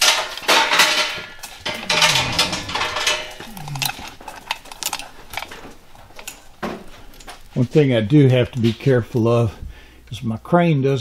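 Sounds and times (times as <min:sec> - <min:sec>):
steel chains rattling: 0:00.0 - 0:07.3.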